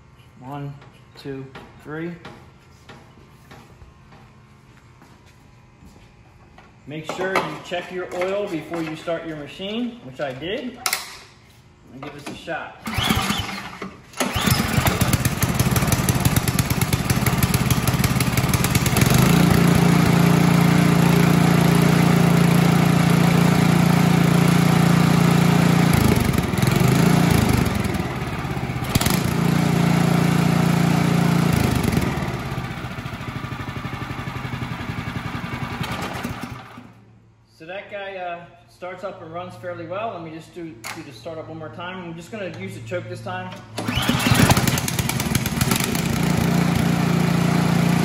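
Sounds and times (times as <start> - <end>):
snowblower engine running: 12.8 - 37.0, 43.8 - 48.0.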